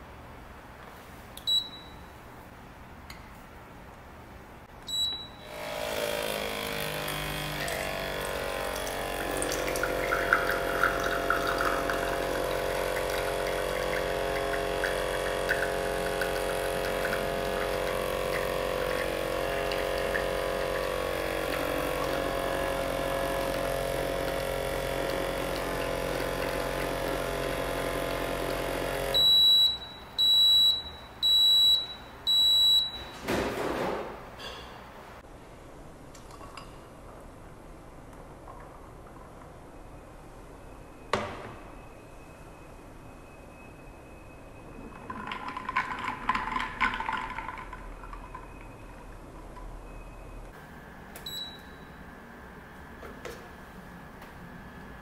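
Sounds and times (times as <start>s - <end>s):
machine beeps: 1.4s - 2.1s, 4.9s - 5.5s, 29.1s - 33.2s, 39.7s - 45.2s, 48.0s - 50.6s, 51.2s - 52.0s
pump humming: 4.9s - 33.0s
espresso pouring into glass: 7.0s - 29.1s, 44.9s - 49.3s.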